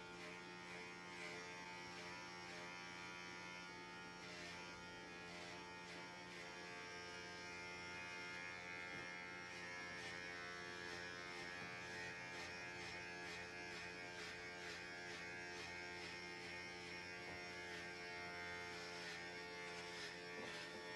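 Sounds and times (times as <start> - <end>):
electric hair clippers buzzing: 0.0 - 20.9.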